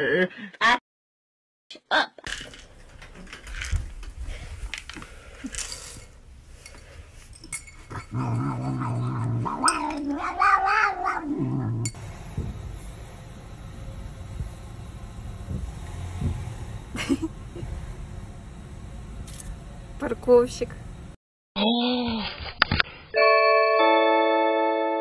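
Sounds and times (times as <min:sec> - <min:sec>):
cat yowling: 0:08.9 - 0:11.7.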